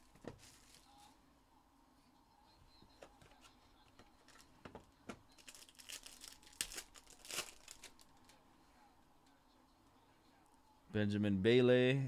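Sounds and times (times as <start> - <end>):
foil wrapper crinkling: 5.3 - 8.3
foil tearing: 5.4 - 8.2.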